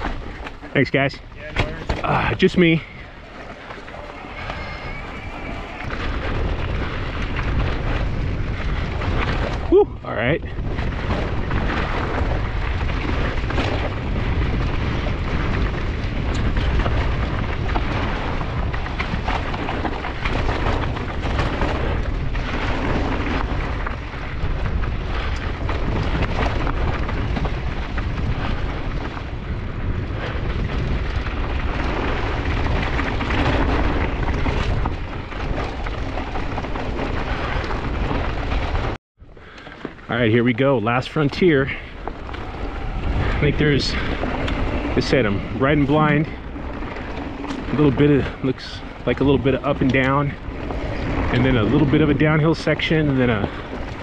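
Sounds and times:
bike knocks and rattles: 0.0s - 40.1s, 41.7s - 54.0s
wind rumble on microphone: 0.0s - 54.0s.

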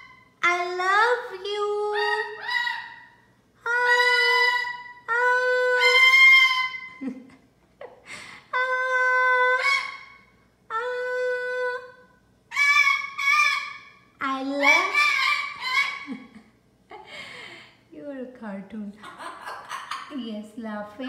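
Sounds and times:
macaw squawks: 12.5s - 16.2s.

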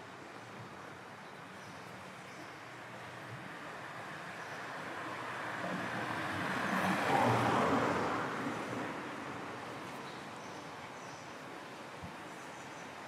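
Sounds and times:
car driving past: 5.3s - 9.0s.

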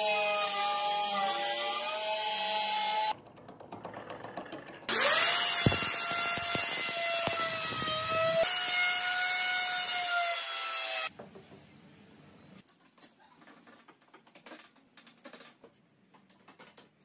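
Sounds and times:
router whining: 4.9s - 11.1s.

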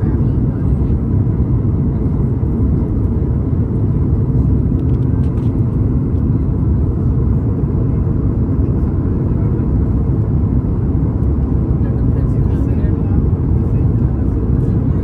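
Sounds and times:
airliner cabin rumble: 0.0s - 15.0s.

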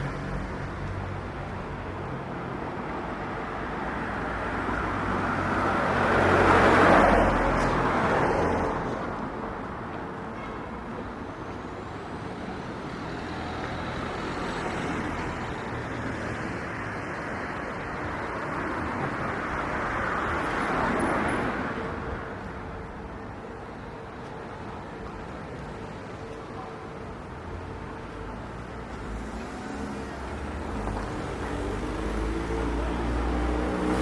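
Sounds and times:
distant traffic hum: 0.0s - 34.0s
car passing by: 29.0s - 34.0s.

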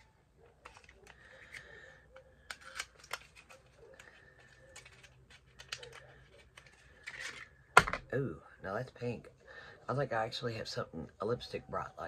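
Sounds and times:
packaging clicks and taps: 0.0s - 8.0s.

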